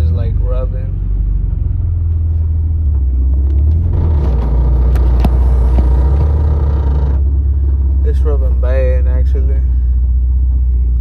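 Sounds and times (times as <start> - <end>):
car engine and road rumble: 0.0 - 11.0
tyre rubbing and scraping: 4.2 - 6.8.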